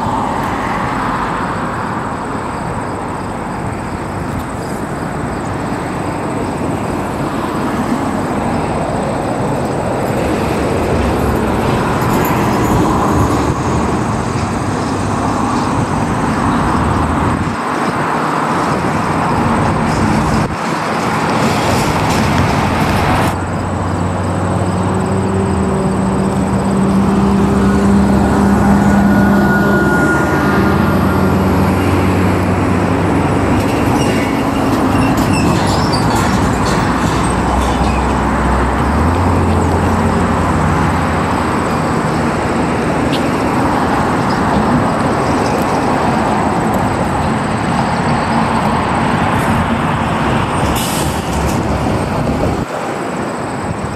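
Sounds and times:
vehicle droning hum: 22.1 - 52.7.

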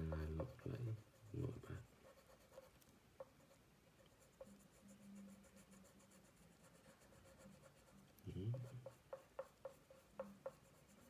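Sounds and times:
crayon scratching on paper: 0.0 - 11.0.

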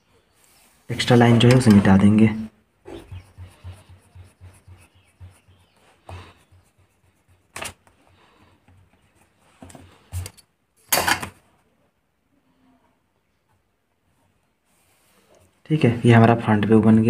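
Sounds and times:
eraser rubbing on paper: 2.8 - 10.3
ruler scraping on paper: 2.8 - 10.4
paper rustles and taps: 7.5 - 8.0.

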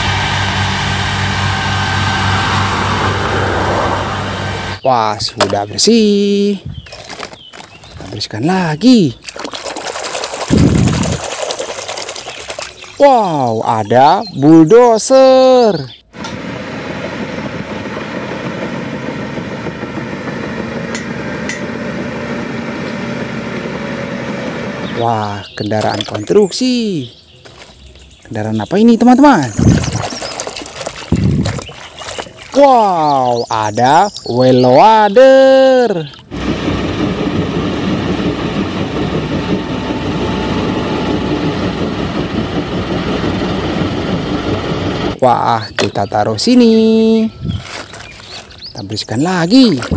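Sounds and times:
diesel engine rumbling: 0.0 - 9.3, 11.8 - 49.9
bulldozer diesel engine clattering: 36.0 - 48.8.

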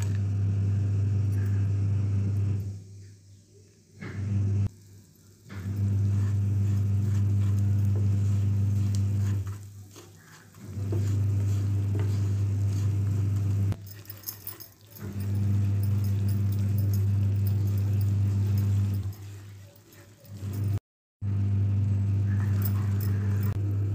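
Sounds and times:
low hum with overtones: 0.0 - 2.8
wooden spatula scraping a pan: 5.5 - 20.5.

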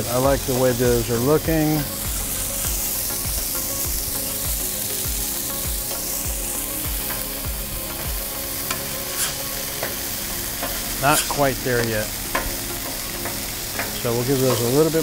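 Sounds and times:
burger patties sizzling on griddle: 0.0 - 15.0
metal spatula scraping steel: 7.0 - 15.0.

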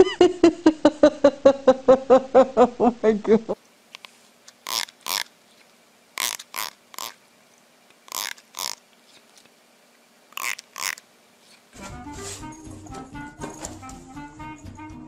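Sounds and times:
fingertip strumming comb teeth: 4.5 - 5.3, 6.2 - 7.2, 8.1 - 8.8, 10.4 - 11.0.

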